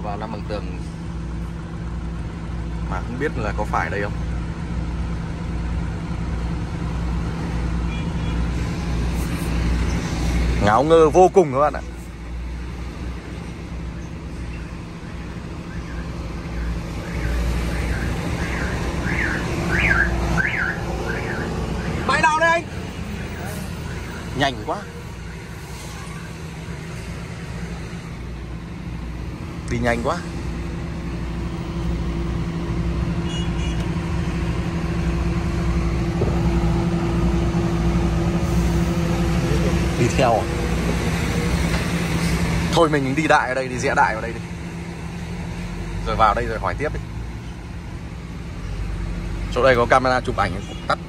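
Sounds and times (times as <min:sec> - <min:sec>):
diesel truck engine running: 0:00.0 - 0:51.0
warbling alarm chirp: 0:14.4 - 0:22.2.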